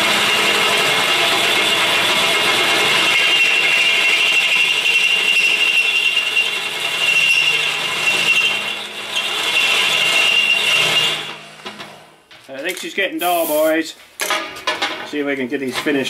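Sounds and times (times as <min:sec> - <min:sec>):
drill bit squealing through steel: 0:03.0 - 0:11.4.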